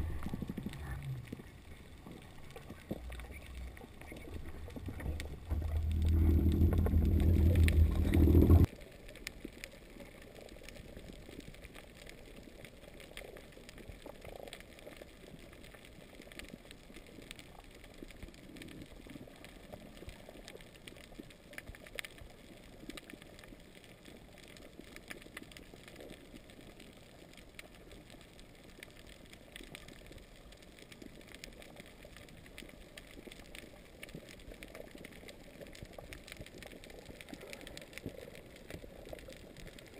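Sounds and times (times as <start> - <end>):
faint underwater hiss: 0.0 - 12.6
small underwater clicks: 0.0 - 39.9
underwater boat motor humming: 4.4 - 8.7.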